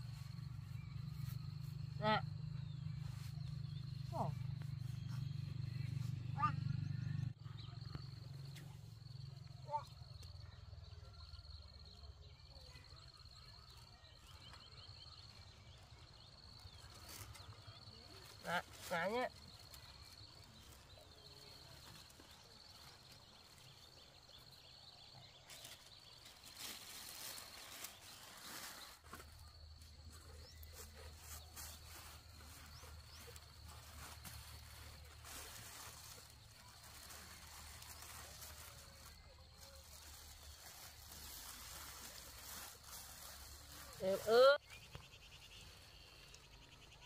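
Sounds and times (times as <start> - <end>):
soft rustles: 25.4 - 44.3.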